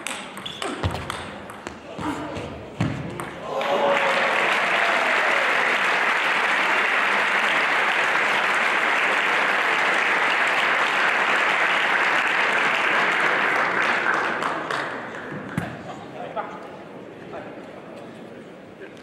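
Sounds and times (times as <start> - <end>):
audience applauding: 3.4 - 15.1.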